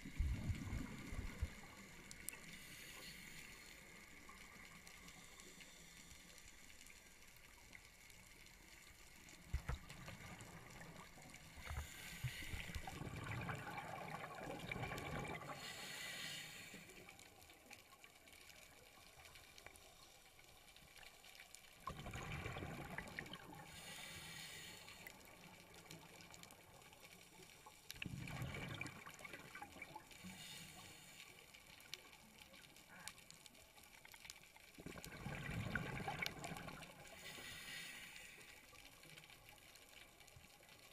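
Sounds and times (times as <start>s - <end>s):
exhaled bubbles gurgling underwater: 0.0s - 2.6s, 9.4s - 16.2s, 21.8s - 26.9s, 27.8s - 30.6s, 34.6s - 37.6s
regulator inhale hiss: 2.3s - 7.1s, 11.6s - 12.9s, 15.5s - 17.2s, 23.6s - 25.5s, 30.2s - 31.7s, 37.0s - 38.7s.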